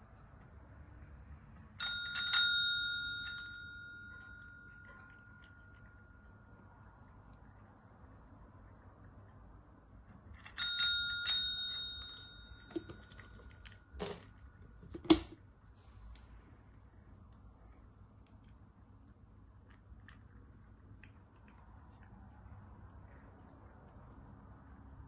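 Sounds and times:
desk call bell dinging: 1.8 - 6.6, 10.4 - 14.3.

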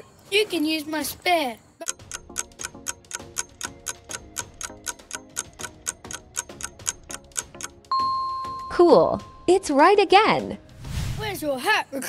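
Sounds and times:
clock ticking: 1.8 - 8.1
light music: 1.9 - 11.6.

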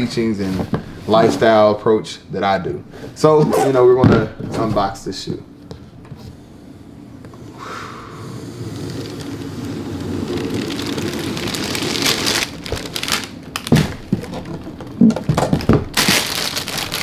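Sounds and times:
tissue paper crinkling: 8.8 - 13.7, 15.9 - 17.0
box knocks and rustles: 13.6 - 16.2.

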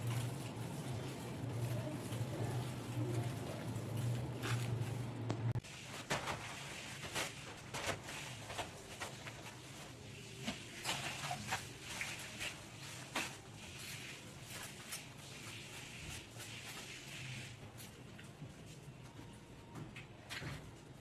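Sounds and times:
household things being handled: 0.0 - 15.2.

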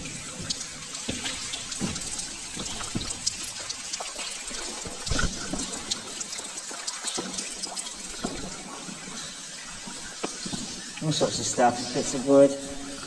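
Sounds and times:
water dripping and splashing: 0.0 - 13.0.

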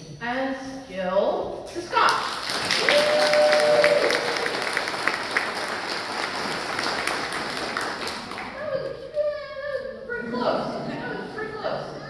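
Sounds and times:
audience applauding: 2.3 - 8.6
person cheering: 2.8 - 4.6.

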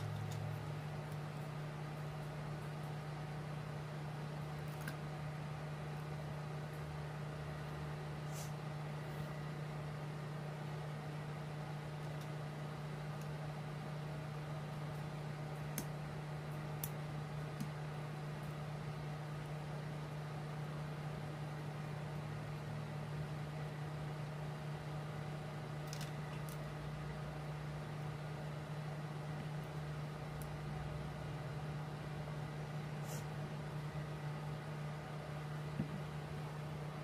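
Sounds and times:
faint clicks of small parts: 25.8 - 26.7.

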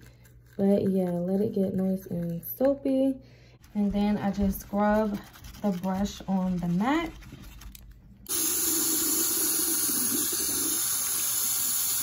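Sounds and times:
faucet turned on: 8.3 - 12.0
water running into sink: 8.3 - 12.0.

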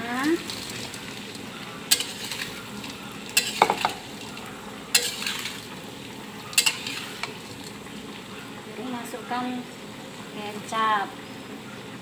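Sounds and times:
food sizzling in oil: 0.0 - 12.0
metal spatula scraping pan: 1.9 - 4.1, 4.9 - 5.7, 6.5 - 7.4.

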